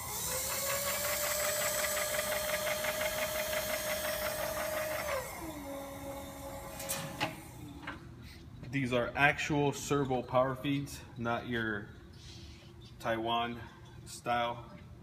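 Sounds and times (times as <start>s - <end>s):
power feed motor whine: 0.0s - 7.9s.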